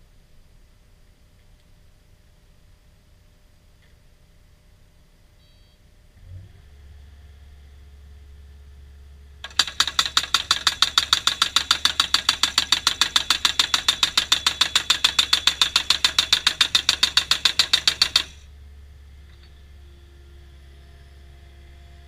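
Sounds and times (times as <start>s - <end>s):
hydraulic post thumper hammering: 9.4s - 18.5s.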